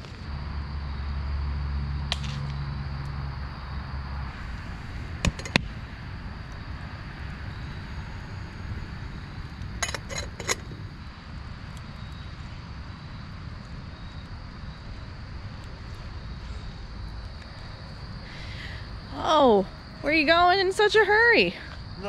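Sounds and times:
low background noise: 0:00.0 - 0:22.0.

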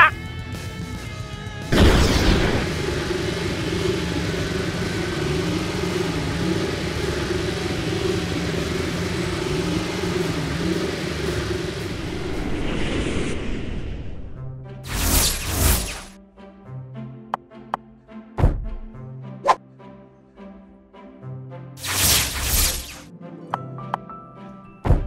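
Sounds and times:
background music: 0:00.0 - 0:12.1, 0:14.4 - 0:25.0
wavering rumble: 0:01.6 - 0:16.1
loud whoosh: 0:01.7 - 0:16.2.

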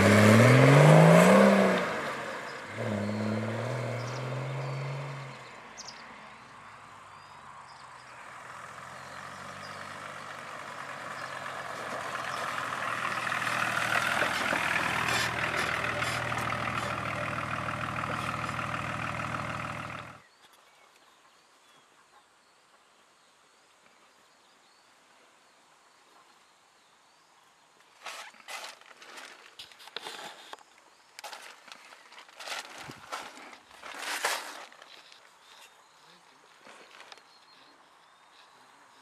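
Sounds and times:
diesel car engine passing: 0:00.0 - 0:06.8, 0:07.5 - 0:20.2
faint outdoor background: 0:00.0 - 0:39.0.

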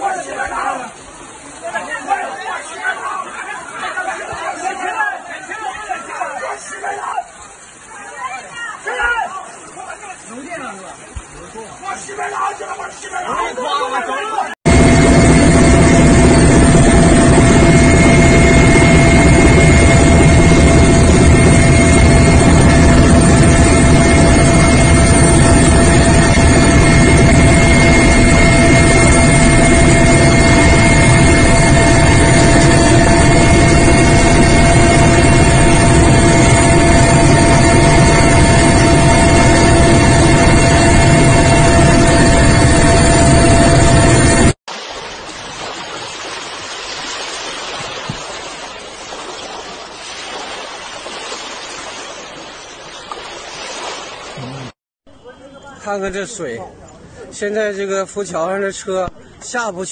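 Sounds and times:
aircraft engine drone in cabin: 0:14.7 - 0:44.6
steady hum tones: 0:14.7 - 0:44.6.

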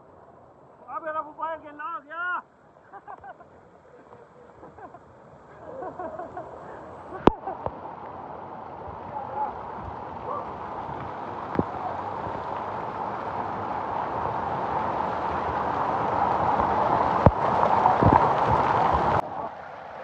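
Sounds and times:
waterfall rushing: 0:04.0 - 0:20.0.

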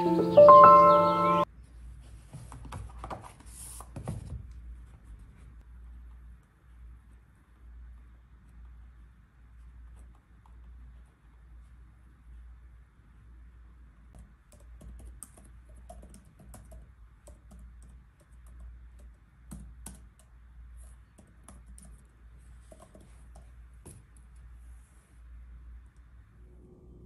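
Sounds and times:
low room hum: 0:00.0 - 0:27.0
laptop keyboard typing: 0:14.1 - 0:24.2.

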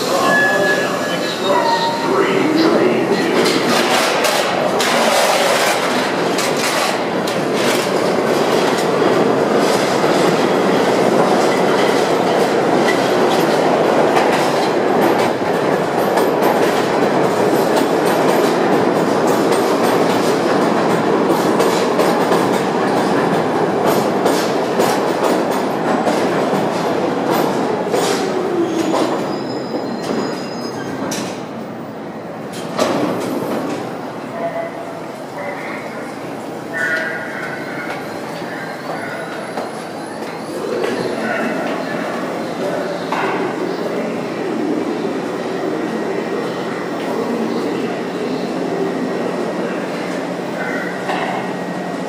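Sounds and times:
train braking whine: 0:00.0 - 0:03.5
subway trains rumbling: 0:00.0 - 0:52.0.

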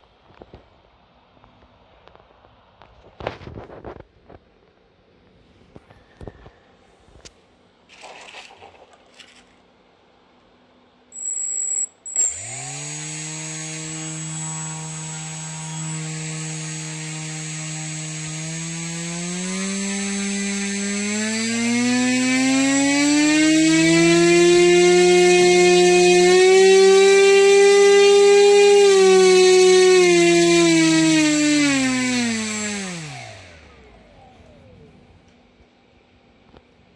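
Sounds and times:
high beep: 0:11.2 - 0:12.7
electric motor whine: 0:11.2 - 0:34.8.

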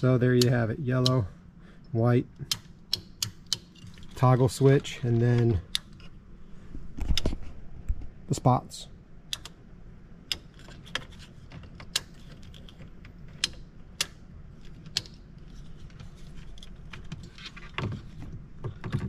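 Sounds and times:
steady low hum: 0:00.0 - 0:19.0
toggle switches clicking: 0:02.4 - 0:03.7, 0:09.3 - 0:09.6, 0:13.3 - 0:14.2
rustling and thumps: 0:15.8 - 0:19.0.

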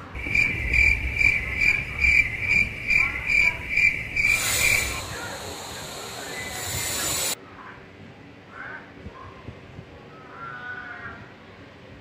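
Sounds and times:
cricket chirping: 0:00.0 - 0:07.4
high hiss: 0:00.1 - 0:07.4.

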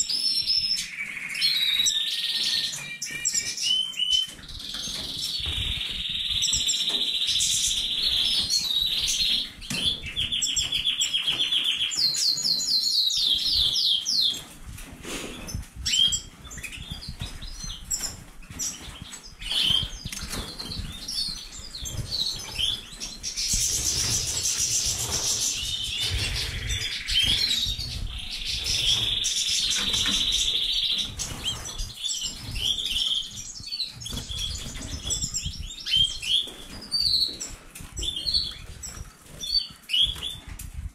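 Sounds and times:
birds singing buzzy trills: 0:00.0 - 0:40.5
wings fluttering: 0:15.0 - 0:33.0.

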